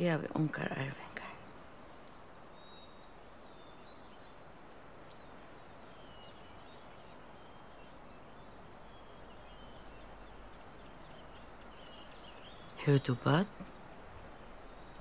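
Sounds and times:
low steady hiss: 0.0s - 15.0s
faint bird chirps: 0.4s - 15.0s.

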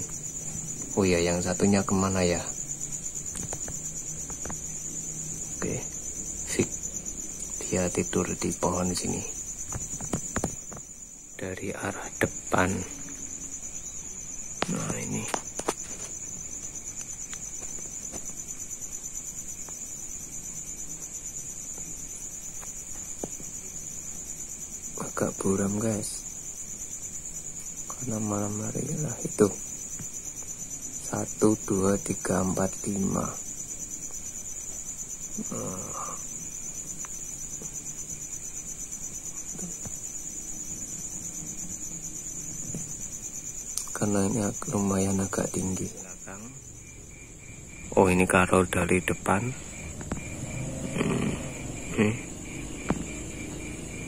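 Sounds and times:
crickets chirring: 0.0s - 54.0s
night insects trilling: 0.0s - 54.0s
faint ticks: 36.9s - 37.8s, 43.7s - 44.2s.

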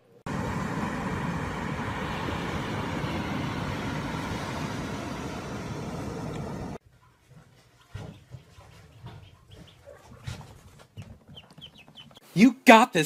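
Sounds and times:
rushing beach noise: 0.3s - 6.8s.

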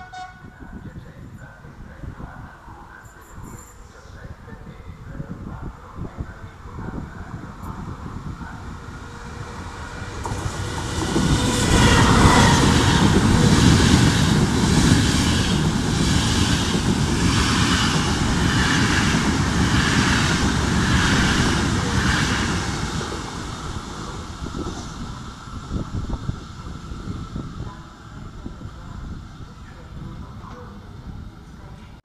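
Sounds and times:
train passing on rails: 0.0s - 32.0s.

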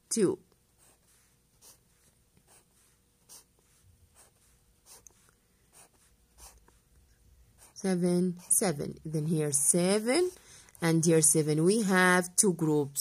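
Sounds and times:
pencil scratching on paper: 0.7s - 6.9s, 7.5s - 11.0s.

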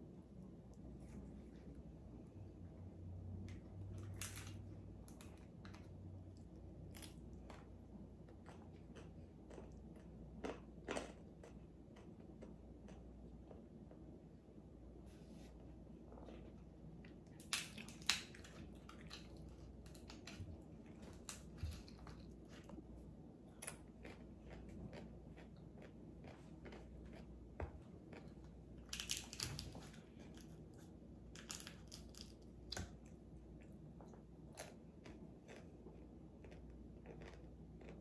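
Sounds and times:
crispy food crunching: 4.0s - 13.5s, 16.1s - 33.1s, 34.1s - 38.0s.

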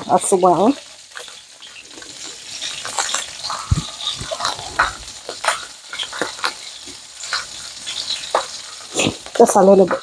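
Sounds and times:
meat sizzling in a frying pan: 0.0s - 10.0s
plastic packet crackling: 0.6s - 10.0s.

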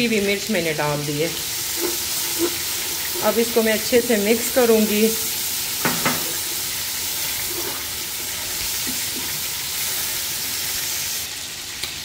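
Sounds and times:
mushrooms sizzling in a pan: 0.0s - 12.0s
spatula scraping a pan: 1.4s - 3.8s, 5.9s - 10.3s.

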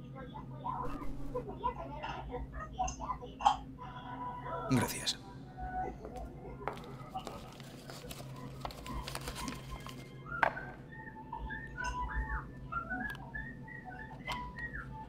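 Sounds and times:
person whistling a tune: 9.0s - 15.0s.

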